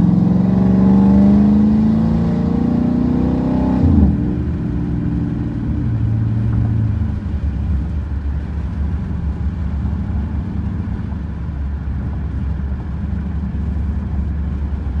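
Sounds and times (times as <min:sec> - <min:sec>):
car exhaust rumble: 0:00.0 - 0:15.0.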